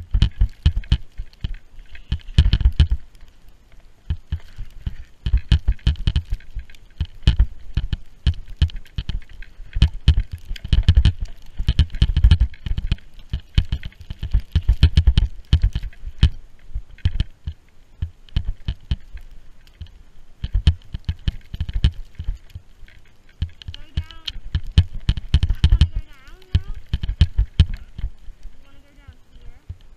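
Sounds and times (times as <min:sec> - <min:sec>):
wind buffeting microphone: 0:04.1 - 0:17.4, 0:23.4 - 0:29.9
heavy low rumble: 0:23.6 - 0:29.9.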